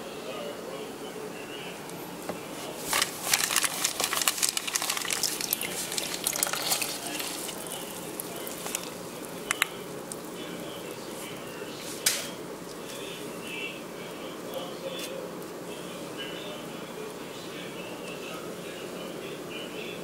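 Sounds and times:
water splashing in a plastic tub: 2.8s - 10.6s.

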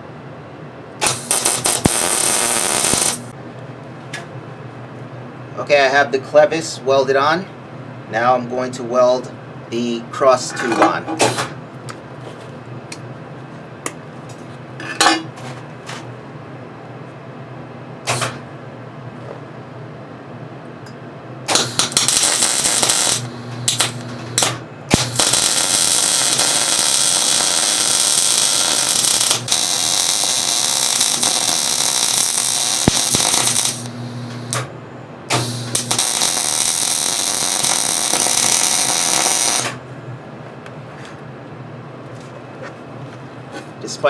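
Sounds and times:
low electrical hum: 0.0s - 44.0s
welding arc crackling: 1.0s - 3.4s, 21.5s - 34.7s, 35.3s - 39.8s.

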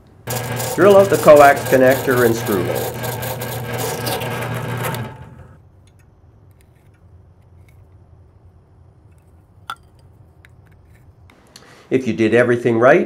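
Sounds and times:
drill press cutting plastic: 0.0s - 5.6s
drill press spinning down: 0.0s - 5.6s.

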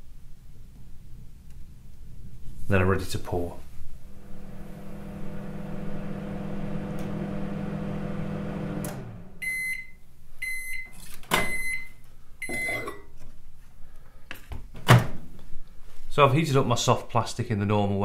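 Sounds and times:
microwave oven humming: 4.0s - 10.6s
microwave beeping: 4.2s - 13.0s.

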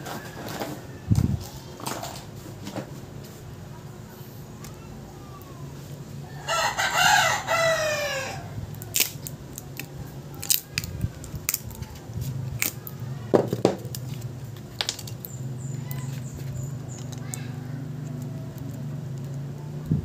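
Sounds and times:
rooster crowing: 0.0s - 1.2s, 6.3s - 8.6s.

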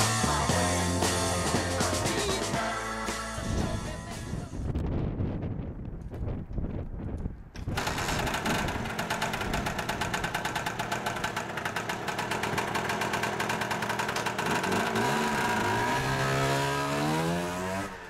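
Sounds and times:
scooter engine running: 7.7s - 18.0s.

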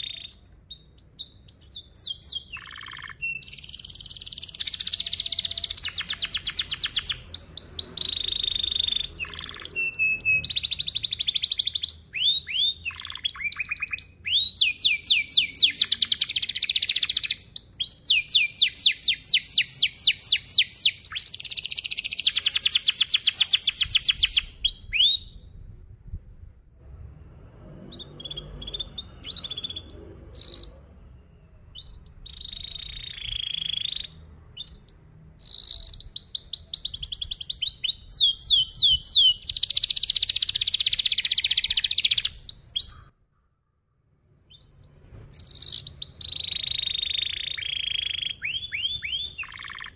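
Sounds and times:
canary singing trills: 0.0s - 25.6s, 27.8s - 43.3s, 44.5s - 49.9s
short bird chirps: 0.0s - 25.7s, 26.6s - 43.6s, 44.5s - 49.9s.

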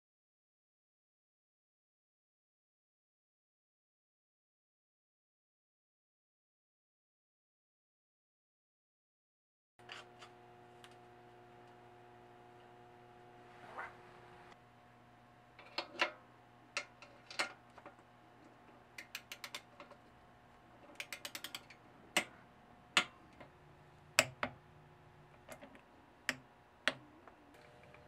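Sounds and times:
ratchet wrench clicking: 19.0s - 19.7s, 21.0s - 21.8s
sharp metal clicks: 19.0s - 19.9s, 20.8s - 22.4s
tools tapping on parts: 19.0s - 20.1s, 20.8s - 22.4s.

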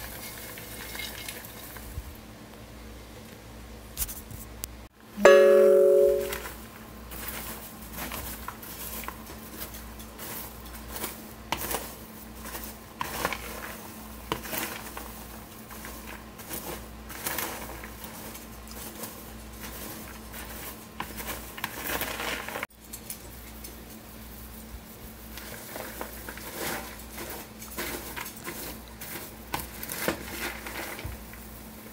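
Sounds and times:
popcorn rustling: 0.0s - 2.2s, 5.3s - 31.9s
low steady hum: 1.6s - 22.1s.

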